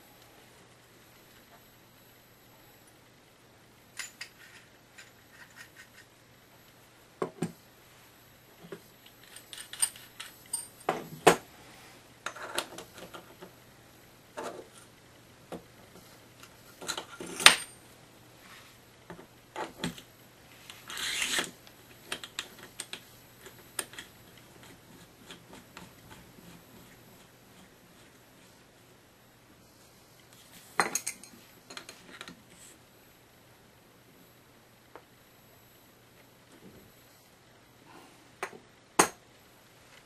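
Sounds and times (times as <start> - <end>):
rasping metal scrape: 20.8 - 21.5.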